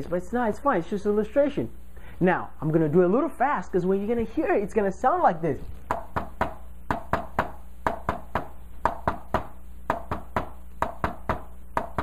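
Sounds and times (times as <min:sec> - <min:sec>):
hand tapping on whiteboard: 0:05.9 - 0:12.0.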